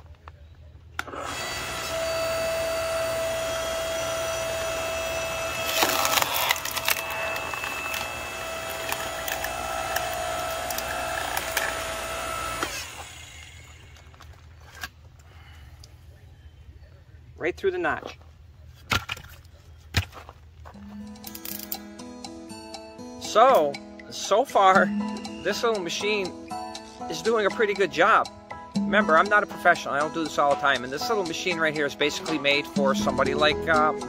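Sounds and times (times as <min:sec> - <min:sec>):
log splitter motor whine: 0:01.0 - 0:14.4
wood cracking and splintering: 0:05.6 - 0:11.9.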